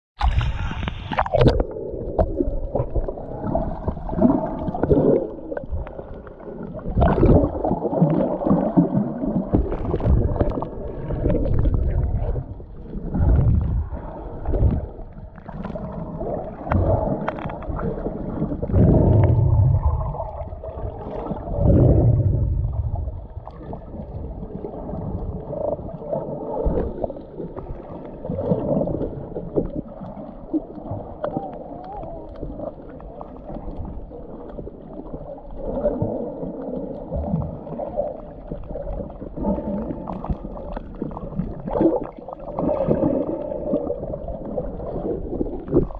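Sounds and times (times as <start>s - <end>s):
water splashing at the surface: 0.2s - 12.4s
underwater sloshing and gurgling: 0.2s - 45.9s.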